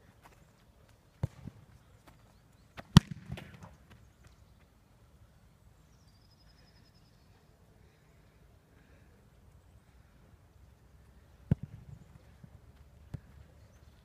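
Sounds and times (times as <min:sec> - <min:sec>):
football kick thuds: 0:11.5 - 0:11.9.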